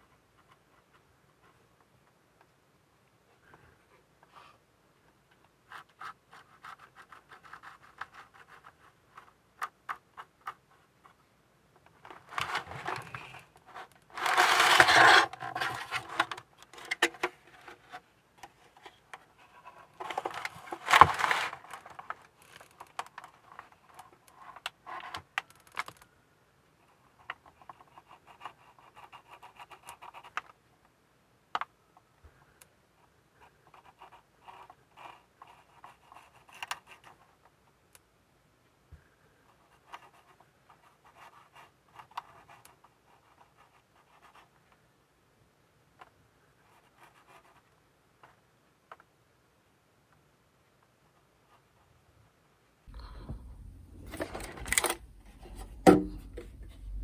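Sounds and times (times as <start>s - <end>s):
handling noise: 19.7s - 23.9s, 52.9s - 57.0s.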